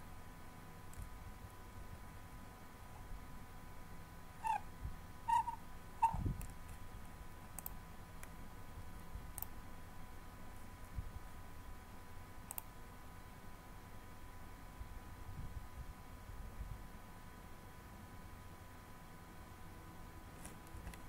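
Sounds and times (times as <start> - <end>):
short squeaky chirps: 4.4 - 4.6, 5.3 - 6.3
computer mouse clicking: 7.5 - 8.4, 9.3 - 9.6, 12.5 - 12.7.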